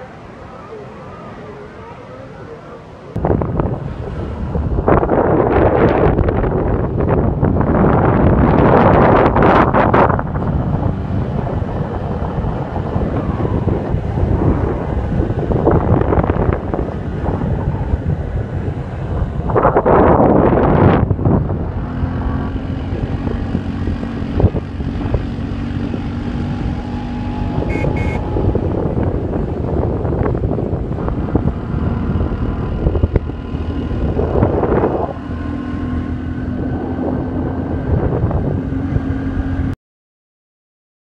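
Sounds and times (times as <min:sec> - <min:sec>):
low engine hum: 0:00.0 - 0:39.8
vehicle rumble: 0:00.0 - 0:39.8
wind buffeting microphone: 0:03.0 - 0:39.7.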